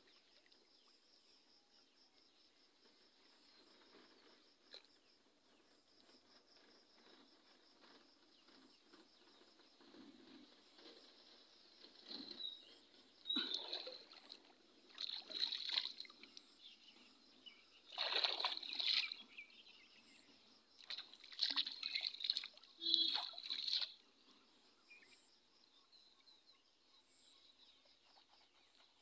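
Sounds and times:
shallow water splashing: 0:13.3 - 0:16.5, 0:17.9 - 0:19.4, 0:20.8 - 0:24.0.

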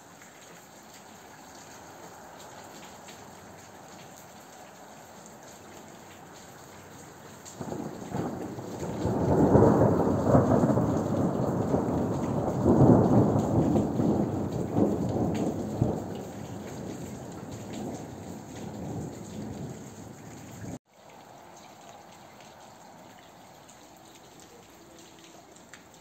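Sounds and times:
steady rain: 0:00.0 - 0:26.0
rolling thunder: 0:07.6 - 0:20.8.

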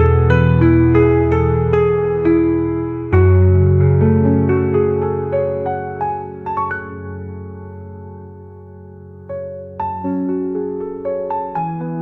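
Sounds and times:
soft keyboard music: 0:00.0 - 0:12.0.

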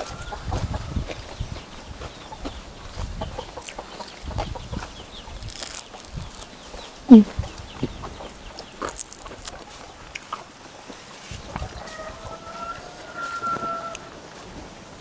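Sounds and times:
chickens clucking: 0:00.0 - 0:15.0
chicken squawk: 0:11.5 - 0:14.3.

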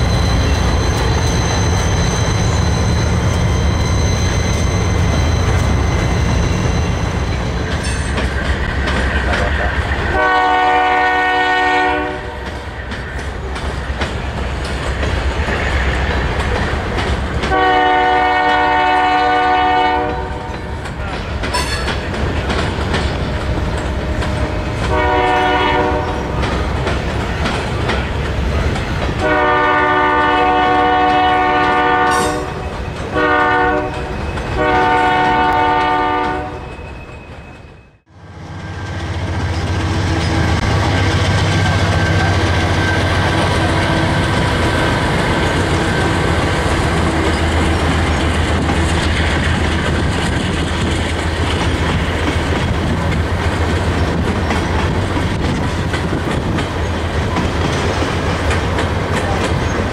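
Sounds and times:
rumble and clatter of passing train: 0:00.0 - 0:59.9
locomotive air horn blasts: 0:10.1 - 0:12.5, 0:17.5 - 0:20.5, 0:24.8 - 0:26.4, 0:29.2 - 0:36.7.

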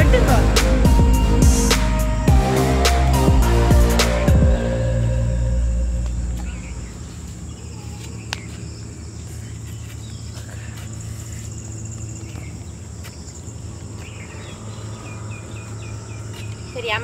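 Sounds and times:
insects calling: 0:05.0 - 0:17.0
birds calling: 0:06.0 - 0:17.0.

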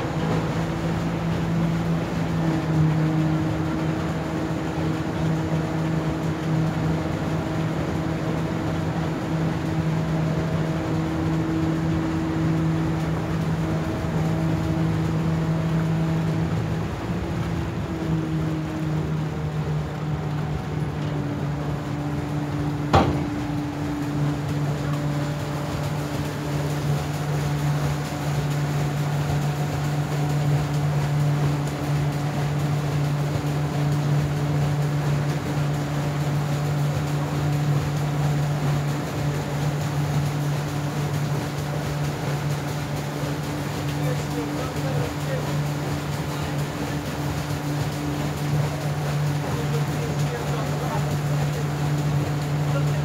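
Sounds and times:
ferry engine humming: 0:00.0 - 0:53.0
sharp knock: 0:22.9 - 0:23.4.

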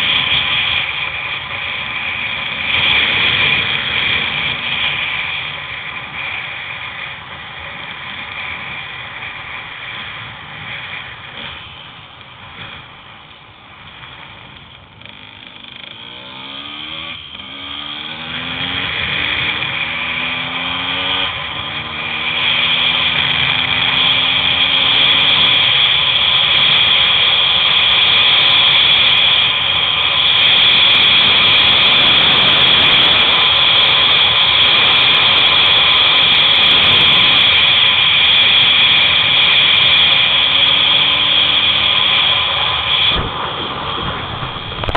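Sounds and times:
wheels rolling on rough asphalt: 0:00.0 - 0:44.9
wind rushing past microphone: 0:41.3 - 0:44.9.

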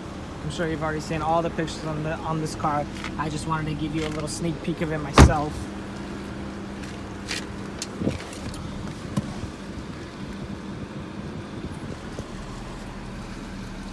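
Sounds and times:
low car cabin hum: 0:00.0 - 0:13.9.

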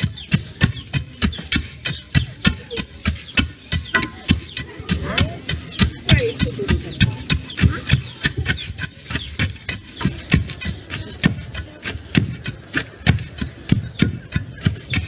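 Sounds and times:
pestle pounding in mortar: 0:00.0 - 0:15.0.

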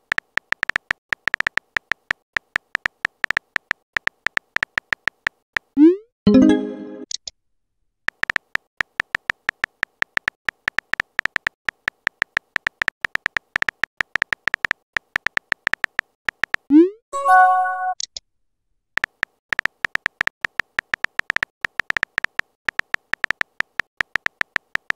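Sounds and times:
short electronic chime: 0:17.2 - 0:18.0.

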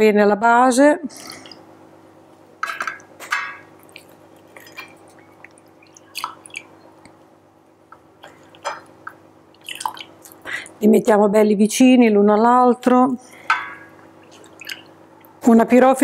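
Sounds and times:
coffee dripping and splashing: 0:02.6 - 0:07.2, 0:08.2 - 0:10.4, 0:13.5 - 0:15.4.

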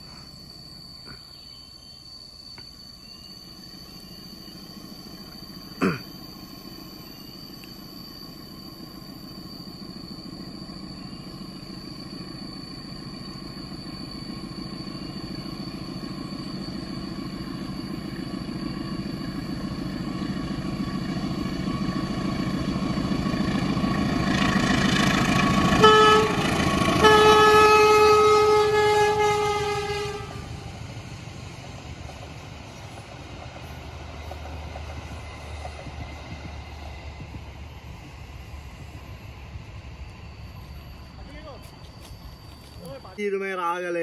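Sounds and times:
diesel locomotive engine: 0:00.0 - 0:44.0
train wheels on rails: 0:00.0 - 0:44.0
multi-tone train horn blasts: 0:25.4 - 0:30.7.

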